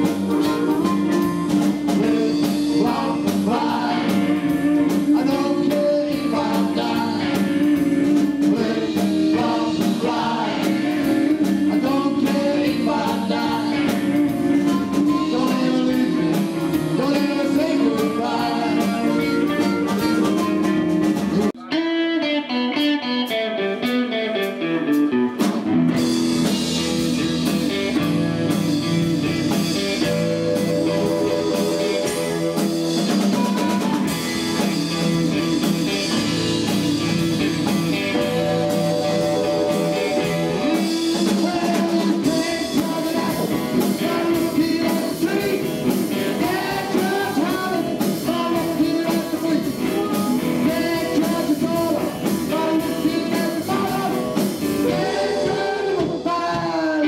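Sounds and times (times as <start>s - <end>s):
rhythm and blues band playing: 0.0s - 57.0s
descending instrumental solo run: 18.9s - 41.7s.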